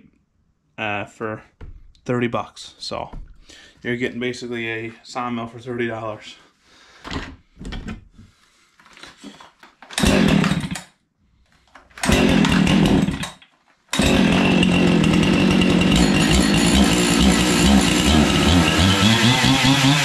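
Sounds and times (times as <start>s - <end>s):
chainsaw starting and running: 9.9s - 10.9s, 12.0s - 20.0s.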